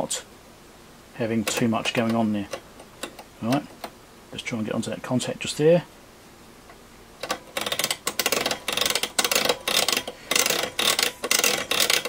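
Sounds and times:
rotary switches clicking: 1.3 - 4.0, 6.7 - 12.0.

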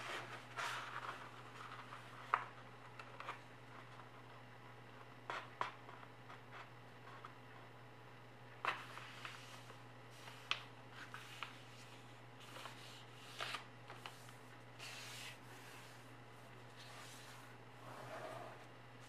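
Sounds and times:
paper folding and rustling: 0.0 - 4.1, 8.6 - 16.1.

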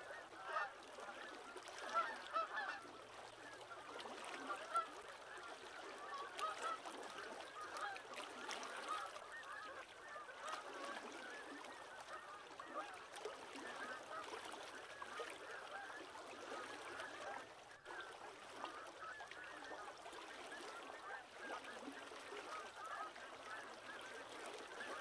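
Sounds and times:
flock of waterbirds honking: 0.0 - 25.0.

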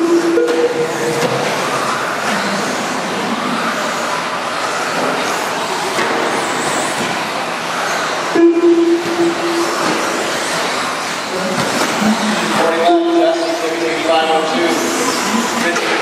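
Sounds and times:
steady low tone: 8.3 - 9.9.

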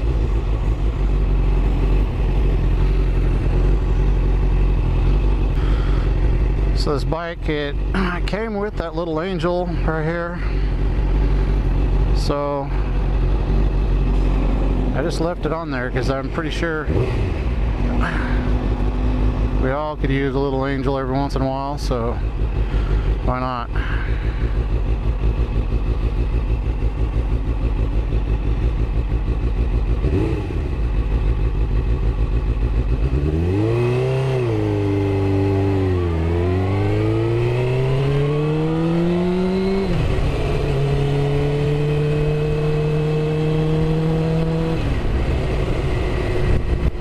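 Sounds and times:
motorcycle engine revving: 0.0 - 47.0.

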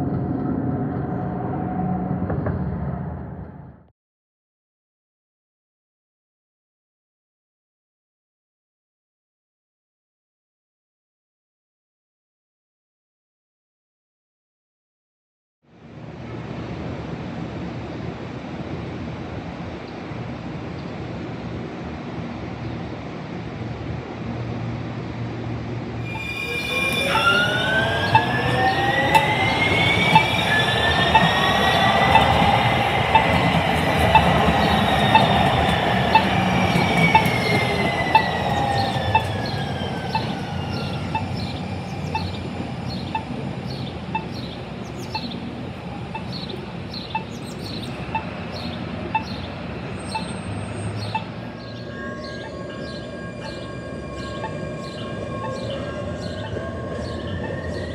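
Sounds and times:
light rail train whine: 0.0 - 3.8, 15.7 - 57.9.

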